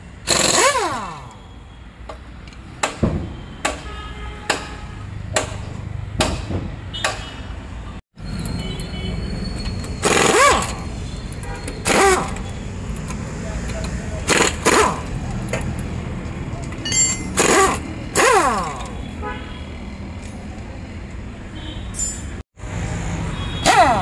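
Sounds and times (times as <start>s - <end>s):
pneumatic impact wrench: 0.2s - 1.4s, 9.7s - 11.0s, 11.6s - 12.5s, 14.2s - 15.2s, 17.2s - 19.0s.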